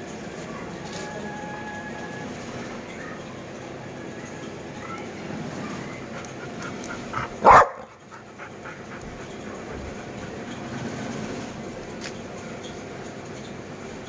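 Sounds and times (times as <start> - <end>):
dog panting: 5.7 - 10.9
dog barking: 7.1 - 8.0.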